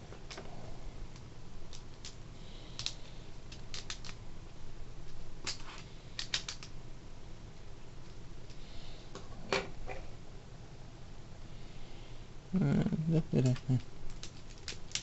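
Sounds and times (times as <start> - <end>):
plastic bricks clicking and clattering: 13.4 - 15.0.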